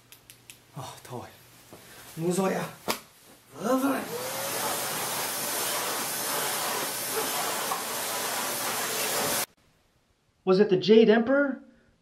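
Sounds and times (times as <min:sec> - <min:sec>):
vacuum cleaner running: 0:03.6 - 0:09.5.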